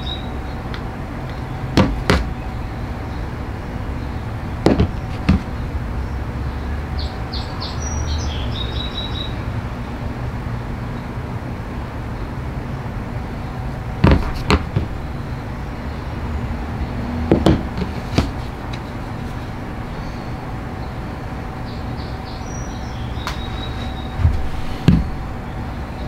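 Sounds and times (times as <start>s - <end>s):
steady background hum: 0.0s - 26.0s.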